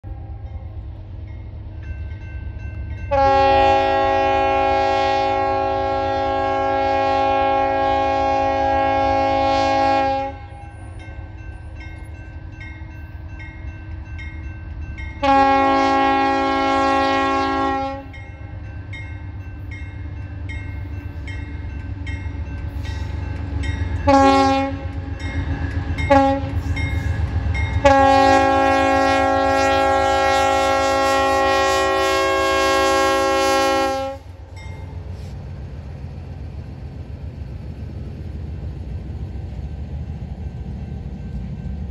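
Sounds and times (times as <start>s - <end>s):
diesel locomotive rumble: 0.0s - 41.9s
train air horn blasts: 3.1s - 11.0s, 15.2s - 18.2s, 24.0s - 25.3s, 26.1s - 34.4s.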